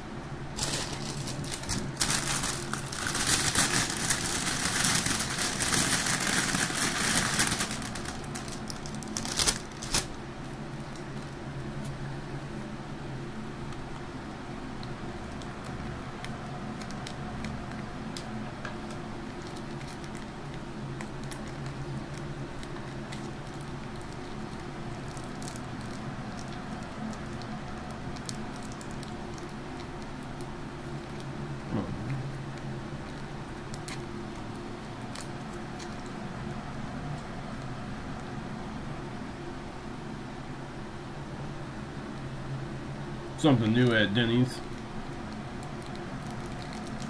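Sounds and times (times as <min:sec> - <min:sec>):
steady low hum: 0:00.0 - 0:47.0
plastic packet crinkling: 0:00.6 - 0:11.4, 0:15.3 - 0:31.3, 0:44.6 - 0:47.0.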